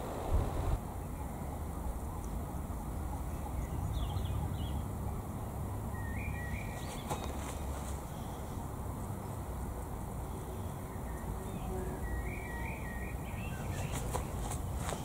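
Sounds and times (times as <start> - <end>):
breeze rumbling on microphone: 0.0 - 0.8
bird chirps: 5.9 - 8.4, 10.3 - 15.0.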